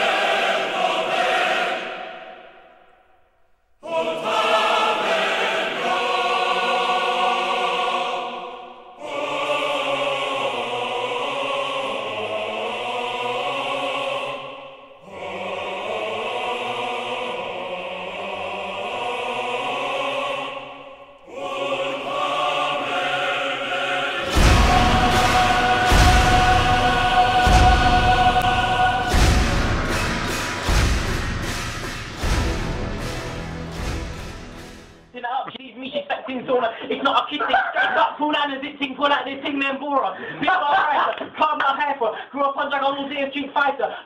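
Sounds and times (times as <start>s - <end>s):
choir singing held chords: 0.0s - 3.2s, 3.8s - 35.1s.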